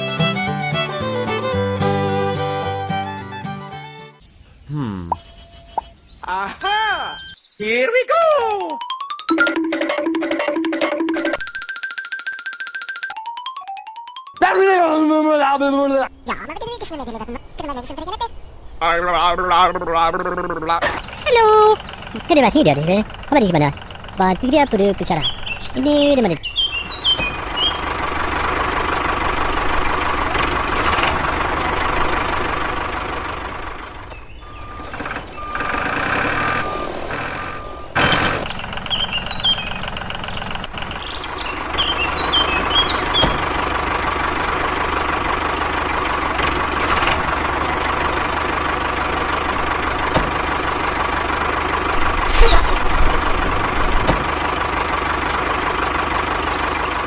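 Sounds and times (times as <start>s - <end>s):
bird chirps: 4.2s - 8.6s, 24.4s - 28.0s, 33.9s - 43.4s, 55.6s - 57.0s
model tractor engine drone: 26.8s - 57.0s.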